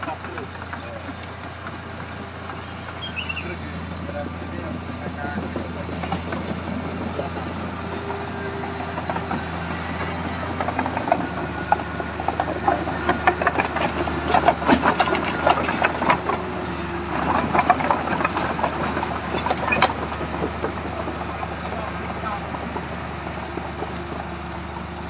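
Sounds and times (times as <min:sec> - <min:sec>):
steel tracks clanking: 0:00.0 - 0:24.3
bulldozer diesel engine running: 0:00.0 - 0:25.0.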